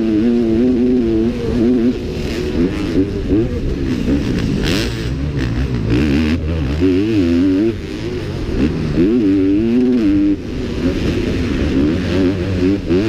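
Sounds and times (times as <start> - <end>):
motorcycle engine revving: 0.0 - 13.0.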